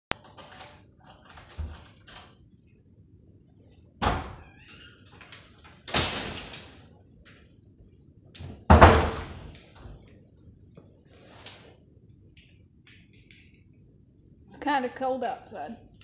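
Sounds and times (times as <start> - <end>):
door being shut: 4.0 - 4.6, 5.9 - 6.8, 8.4 - 9.5
household thuds: 8.5 - 9.4.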